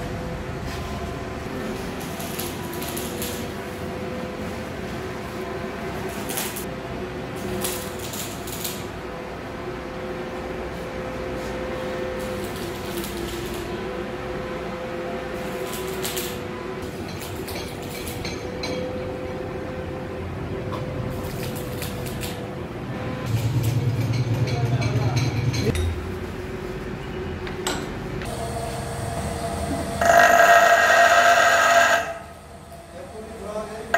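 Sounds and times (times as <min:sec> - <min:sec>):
machine hum: 0:28.2 - 0:33.9.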